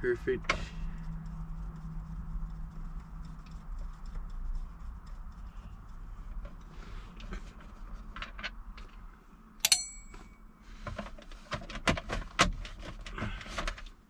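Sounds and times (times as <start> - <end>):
sharp metal clink: 9.6 - 10.4.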